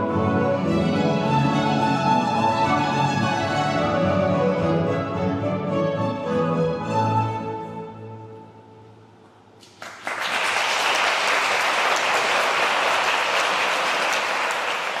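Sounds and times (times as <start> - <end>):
string ensemble playing: 0.0 - 9.2
audience clapping: 9.6 - 15.0.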